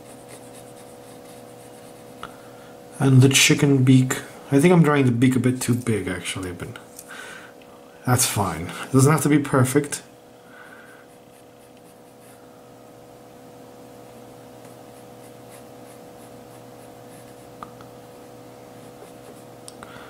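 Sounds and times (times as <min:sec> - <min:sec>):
pencil sketching on paper: 0:00.0 - 0:02.1, 0:14.9 - 0:17.5.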